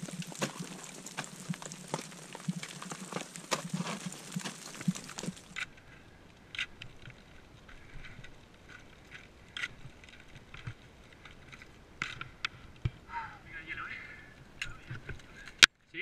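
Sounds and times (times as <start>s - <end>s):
ice axes striking snow: 0.0s - 5.7s.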